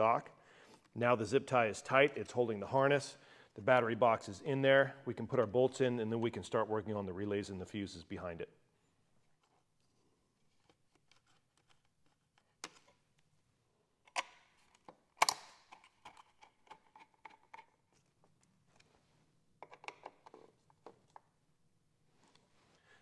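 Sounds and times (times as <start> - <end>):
screwdriver clicks and clinks: 14.1 - 17.8.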